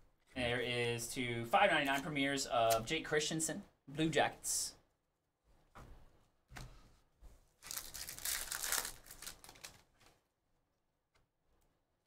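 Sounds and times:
wrapper crinkling and tearing: 7.6 - 10.2
wrapper handling rustles: 7.6 - 10.2.

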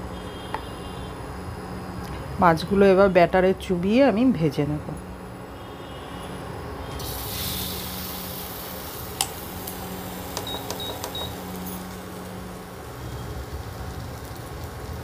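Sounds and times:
fish sizzling in hot oil: 7.0 - 15.0.

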